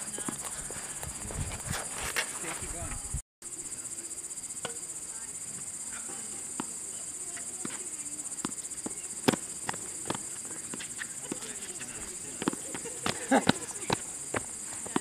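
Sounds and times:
crickets chirring: 0.0s - 15.0s
tennis ball hitting racquets: 7.4s - 15.0s.

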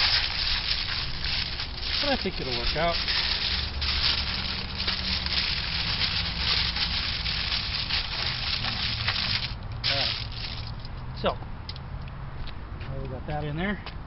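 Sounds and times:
aluminium foil crinkling: 0.0s - 10.9s.

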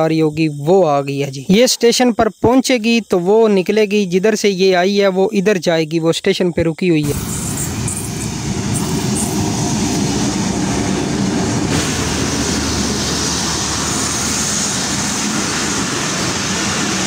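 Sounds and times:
train passing: 7.0s - 17.0s
wheels rumbling on rails: 7.1s - 17.0s.

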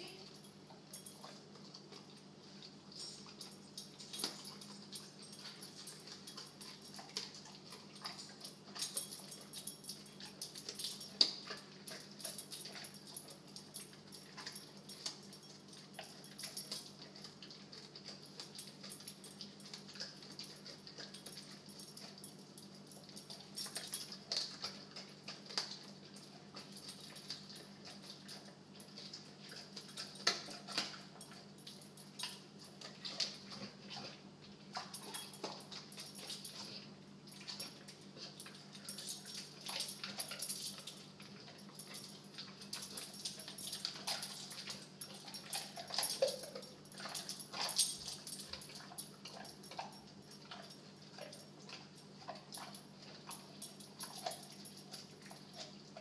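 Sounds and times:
steady low hum: 0.0s - 56.0s
dog gnawing a chew: 0.2s - 56.0s
teeth clicking and crunching: 3.2s - 34.0s.

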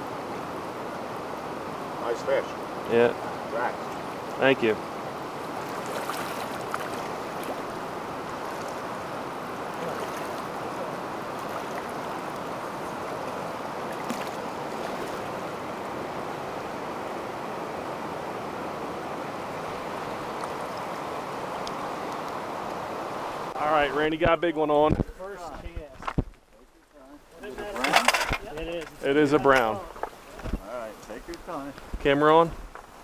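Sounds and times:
river rushing over rocks: 0.0s - 24.0s
faint ticks: 21.6s - 22.4s.

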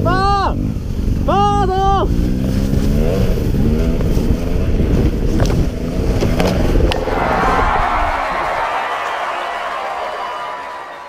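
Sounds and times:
wind noise on helmet: 0.8s - 8.5s.

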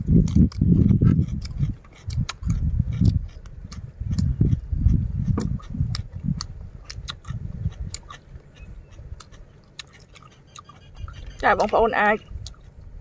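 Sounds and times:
chewing crunchy cucumber: 0.0s - 13.0s.

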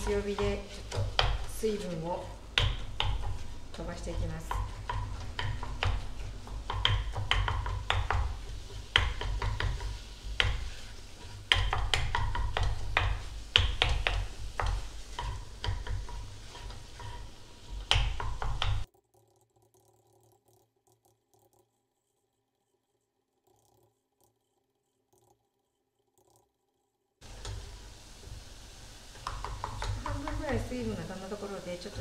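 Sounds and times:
faint sizzle: 0.0s - 18.9s, 27.2s - 32.0s
chopsticks knocking against a pot: 2.5s - 10.7s, 11.4s - 17.2s, 29.2s - 30.6s.

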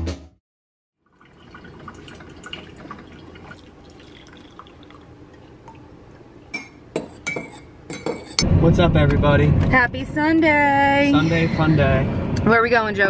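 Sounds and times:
coffee pouring into a mug: 1.0s - 5.9s.

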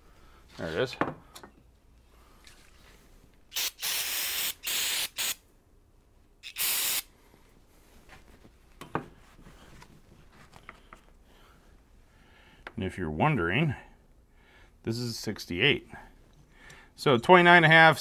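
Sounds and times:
aerosol can spraying hissing blasts: 3.5s - 5.4s, 6.4s - 7.1s.

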